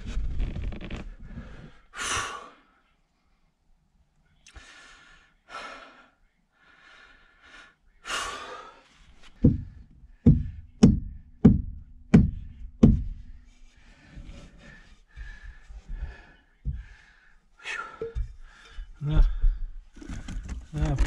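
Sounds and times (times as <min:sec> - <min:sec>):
heavy breathing: 0:04.5 - 0:10.7, 0:13.4 - 0:20.6
hand knocking fibreglass panel: 0:09.4 - 0:13.3.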